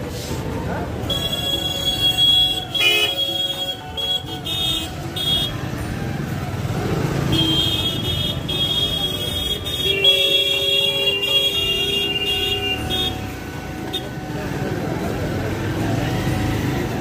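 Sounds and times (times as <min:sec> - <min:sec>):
vehicle horns honking: 0:01.0 - 0:05.8, 0:07.1 - 0:14.6
motorbike passing close: 0:05.6 - 0:09.0, 0:14.3 - 0:17.0.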